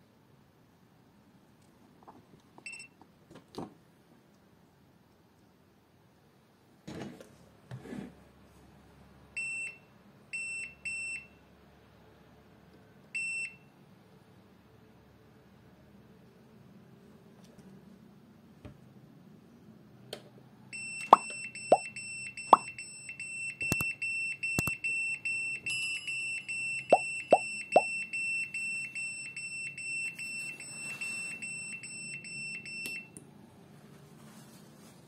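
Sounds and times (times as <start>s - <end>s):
high-pitched buzzer beeping: 26.8s - 27.9s.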